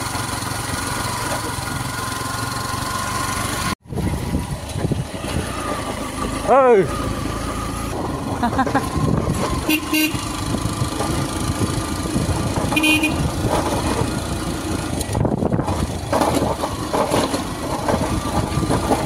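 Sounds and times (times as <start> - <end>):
motorcycle engine on dirt road: 0.0 - 19.0
horn tooting: 9.6 - 10.5, 12.7 - 13.4.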